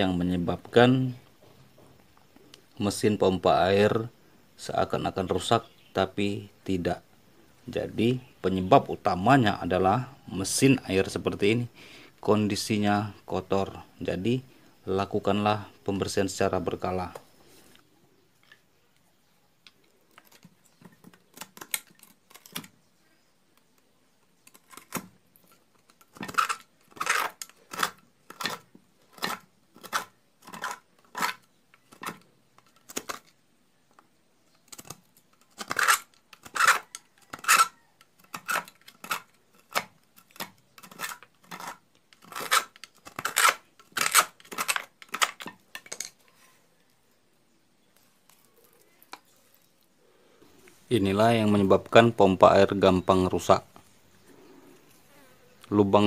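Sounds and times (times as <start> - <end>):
screwdriver scraping metal: 25.8 - 28.6, 35.6 - 46.1.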